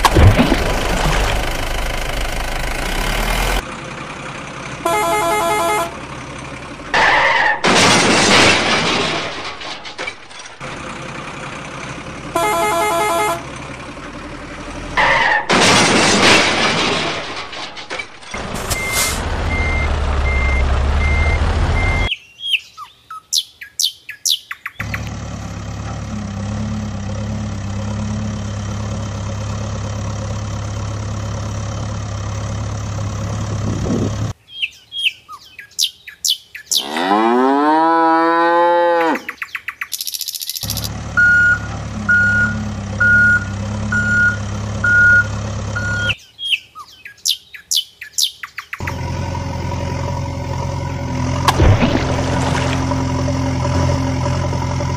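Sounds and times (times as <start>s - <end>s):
heavy vehicle engine running: 0.0s - 22.1s, 24.8s - 34.4s, 40.6s - 46.2s, 48.8s - 54.9s
reversing beeps: 18.7s - 22.1s, 41.2s - 46.2s
birds chirping: 21.8s - 25.1s, 34.4s - 37.1s, 39.0s - 49.0s
cow mooing: 36.8s - 39.3s.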